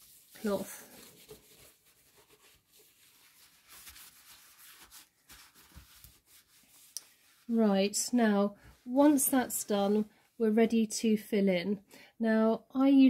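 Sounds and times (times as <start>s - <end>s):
cloth rubbing porcelain bowl: 0.0s - 10.2s.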